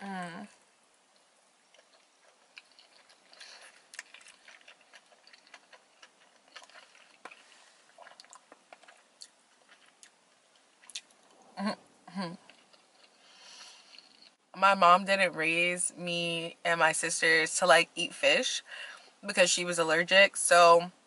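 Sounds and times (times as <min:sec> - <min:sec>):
wet chewing clicks: 0:01.1 - 0:11.4, 0:12.4 - 0:14.4.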